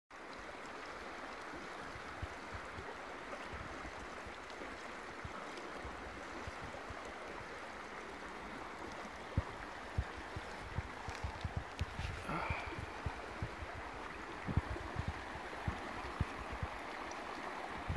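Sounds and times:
river current rushing: 0:00.3 - 0:17.9
faint low thumps: 0:09.4 - 0:16.8.

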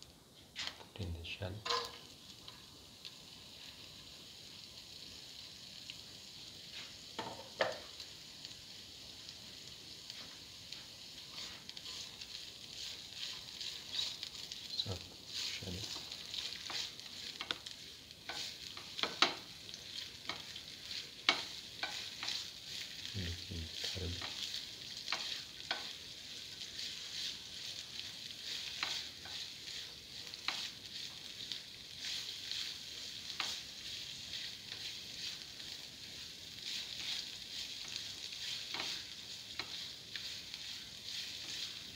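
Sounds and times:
food sizzling in hot oil: 0:00.0 - 0:41.9
spatula scraping and tapping pan: 0:01.6 - 0:02.6, 0:06.7 - 0:08.0, 0:10.1 - 0:23.1, 0:23.8 - 0:41.9.

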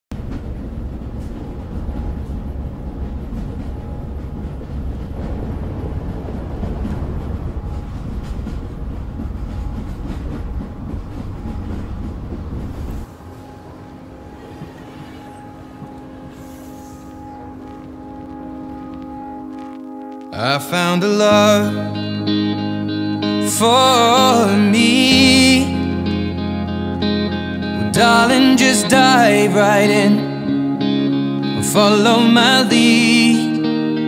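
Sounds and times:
loud low rumbling: 0:00.1 - 0:20.0
soft sustained musical tones: 0:00.4 - 0:34.0.

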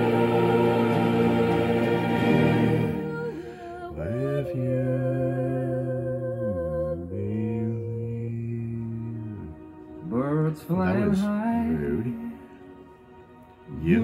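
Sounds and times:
man singing low held notes: 0:06.0 - 0:12.4.

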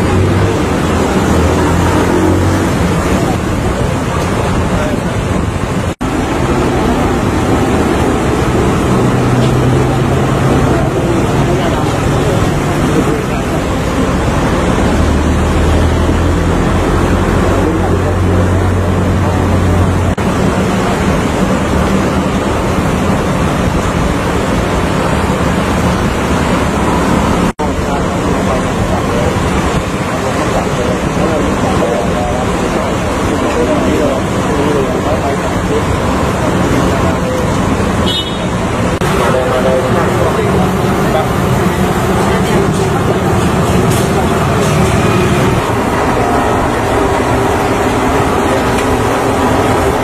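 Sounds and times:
waterfront noise: 0:00.0 - 0:50.0.

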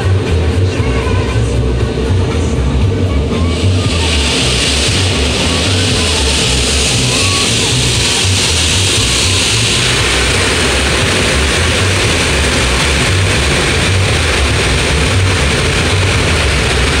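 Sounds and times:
air-dryer blowers: 0:00.0 - 0:17.0
low uneven throb: 0:00.0 - 0:17.0
water spray on car: 0:03.5 - 0:17.0.

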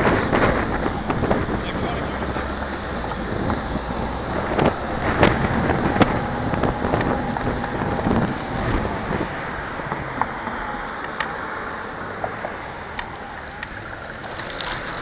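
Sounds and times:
thin high tone: 0:00.0 - 0:09.5
wind rush: 0:00.0 - 0:10.7.

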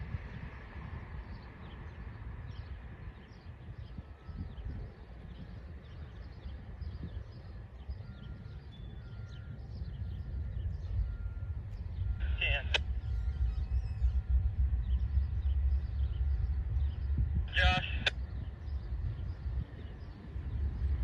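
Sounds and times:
low outdoor rumble: 0:00.0 - 0:21.0
birds chirping: 0:00.3 - 0:21.0.

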